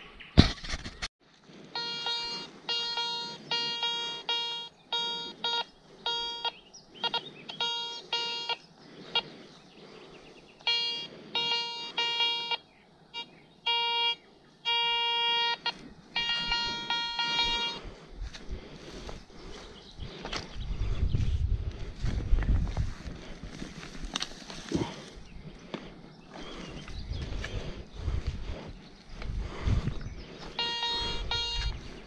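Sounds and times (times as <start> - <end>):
metal detector beeps: 1.7 - 9.3, 10.6 - 17.9, 30.4 - 32.0.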